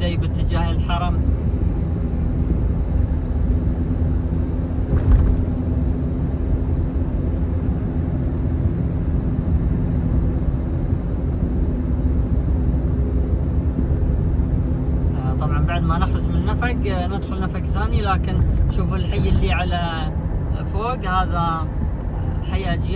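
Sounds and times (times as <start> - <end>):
engine and road rumble in car: 0.0 - 22.9
brief knock: 4.9 - 5.4.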